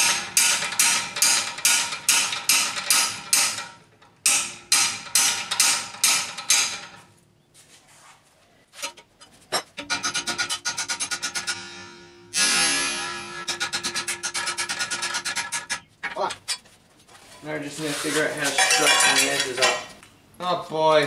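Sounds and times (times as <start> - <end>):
hammer striking steel bar: 0.0 - 6.9, 9.8 - 14.6.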